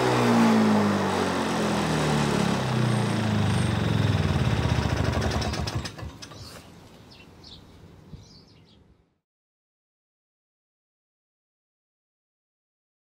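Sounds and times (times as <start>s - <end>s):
mower engine running: 0.0s - 6.6s
birds chirping: 6.2s - 9.2s.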